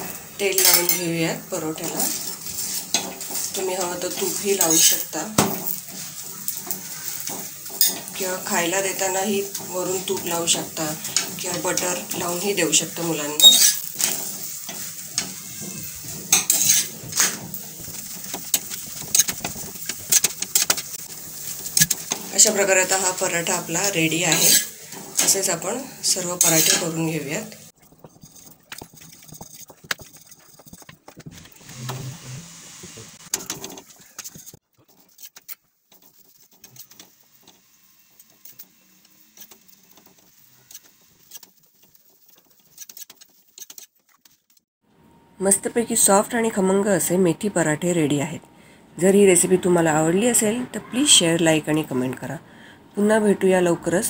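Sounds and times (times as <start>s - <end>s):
steel spatula scraping on iron pan: 0.0s - 30.8s
oil sizzling: 0.0s - 44.6s.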